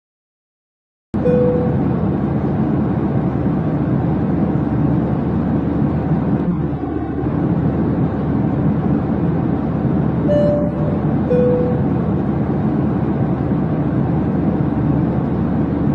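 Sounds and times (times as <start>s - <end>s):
jet engine rumble: 1.2s - 15.9s.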